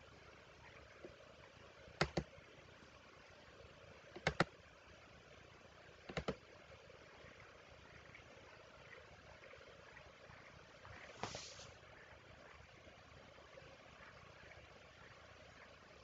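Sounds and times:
faint room noise: 0:00.0 - 0:16.0
computer mouse double-clicks: 0:02.0 - 0:02.3, 0:04.1 - 0:04.5, 0:06.1 - 0:06.4.

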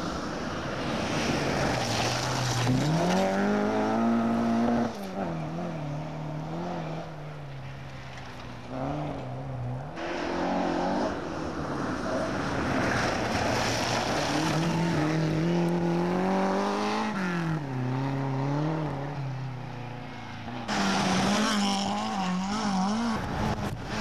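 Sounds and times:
rally car engine at full throttle: 0:00.0 - 0:24.0
tyres hissing on loose gravel: 0:00.9 - 0:02.9.

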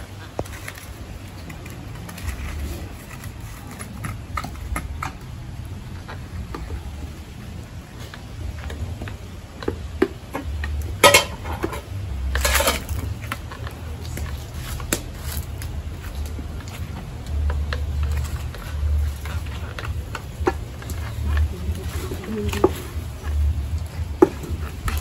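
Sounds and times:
steady low rumble: 0:00.0 - 0:25.0
pots and utensils clattering: 0:10.3 - 0:13.4
metal clank: 0:11.0 - 0:12.9.

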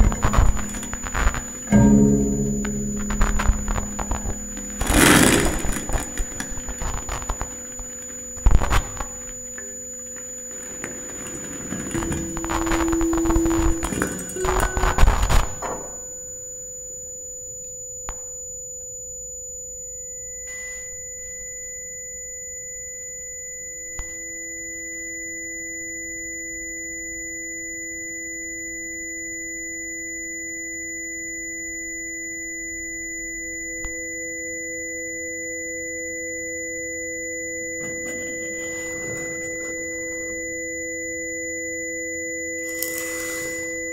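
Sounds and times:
electronic sine tones: 0:00.0 - 0:43.9
brief hiss: 0:42.8 - 0:43.8.

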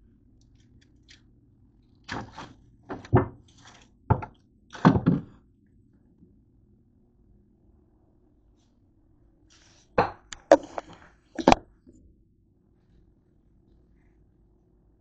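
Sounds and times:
thunks in refrigerator: 0:04.1 - 0:05.4.

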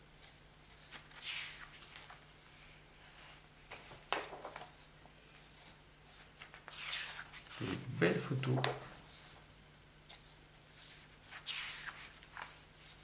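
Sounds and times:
paper pages swishing: 0:00.7 - 0:02.2, 0:03.7 - 0:09.2, 0:11.2 - 0:13.0.

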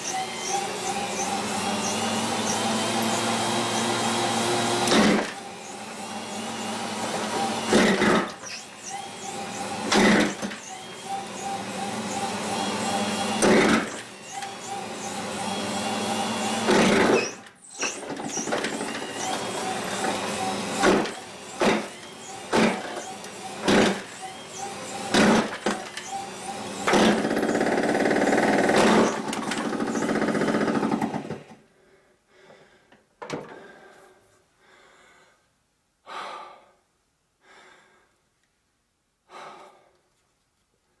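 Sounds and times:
electric wood chipper running: 0:00.0 - 0:31.6.

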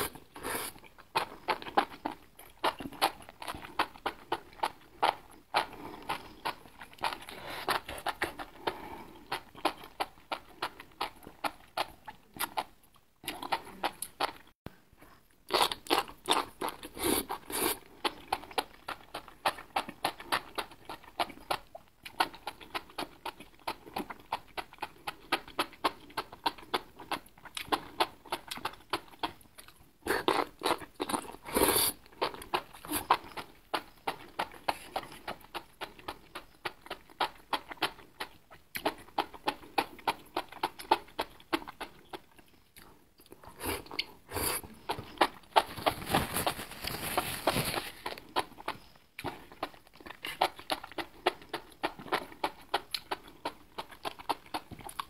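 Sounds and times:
slurping noodles: 0:00.0 - 0:00.9, 0:16.8 - 0:17.9, 0:30.1 - 0:32.0, 0:43.5 - 0:48.2
wet chewing sounds: 0:00.0 - 0:55.0.

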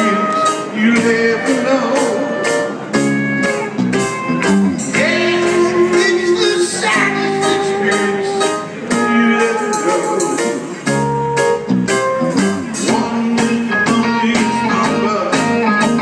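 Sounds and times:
lead vocal singing: 0:00.0 - 0:02.7, 0:04.9 - 0:10.7, 0:12.8 - 0:16.0
drums keeping a steady beat: 0:00.0 - 0:16.0
electric guitar: 0:00.0 - 0:16.0.

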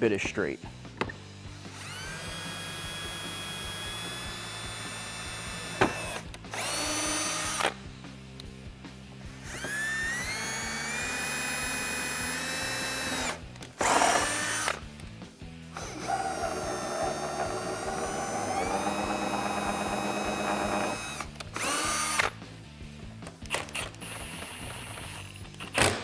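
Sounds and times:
cordless drill whining: 0:01.5 - 0:07.8, 0:09.2 - 0:14.8, 0:15.7 - 0:22.4, 0:23.5 - 0:25.4.

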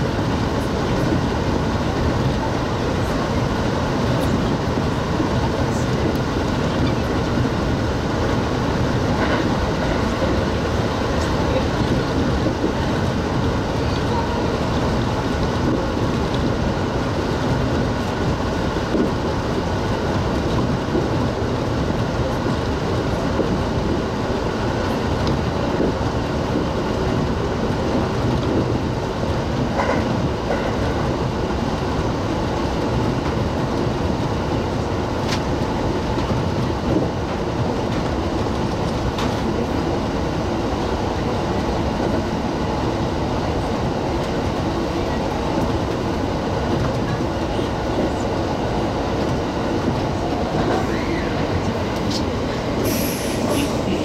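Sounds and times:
train wheels rumbling on track: 0:00.0 - 0:54.0
faint rail clicks: 0:24.7 - 0:28.7.

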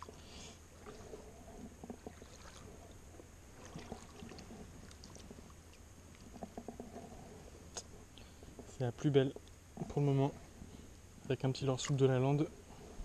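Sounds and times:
faint small water splashes: 0:00.0 - 0:01.2, 0:01.8 - 0:06.4.

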